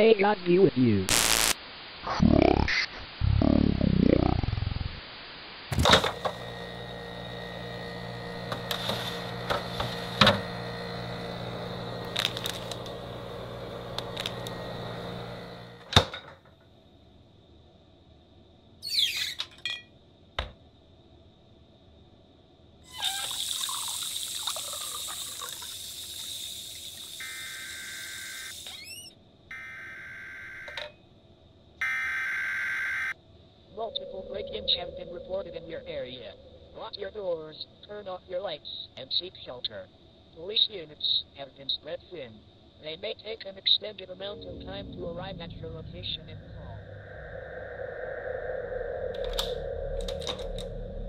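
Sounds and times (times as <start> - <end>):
steady low hum: 5.8 - 15.9, 33.2 - 37.9, 43.7 - 51.0
clicks: 13.9 - 14.6, 49.2 - 50.8
kitchen tap running into sink: 22.9 - 27.2.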